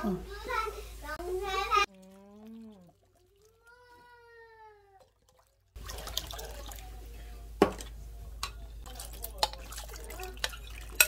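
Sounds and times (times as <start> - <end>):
kitchen clicks and clinks: 7.6 - 11.0.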